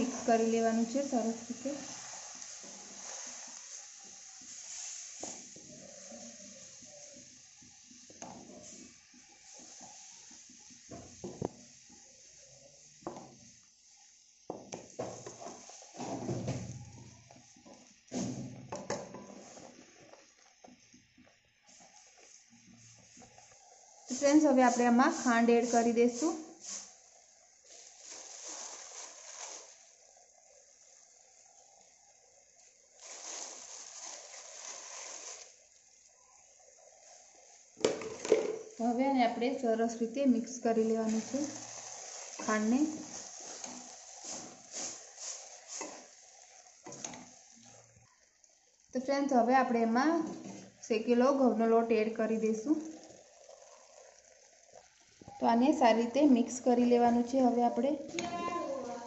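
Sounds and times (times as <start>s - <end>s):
sugar pouring into pan: 0.0s - 20.8s, 21.7s - 57.7s
hiss of bubbling milk: 0.0s - 39.4s, 40.5s - 57.5s
faint simmer: 0.0s - 59.0s
spatula scraping pan: 41.1s - 46.2s.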